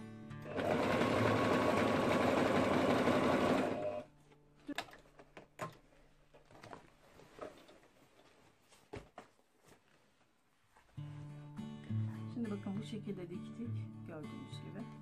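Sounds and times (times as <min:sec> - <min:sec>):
sewing machine stitching: 0:00.5 - 0:04.1.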